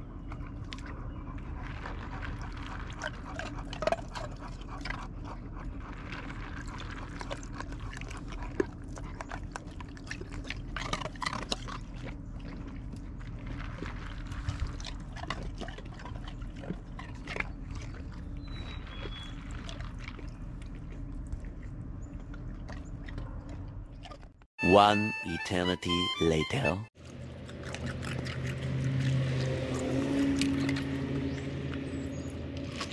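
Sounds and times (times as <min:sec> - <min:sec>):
dog crunching ice cubes: 0:01.6 - 0:20.3, 0:27.0 - 0:31.8.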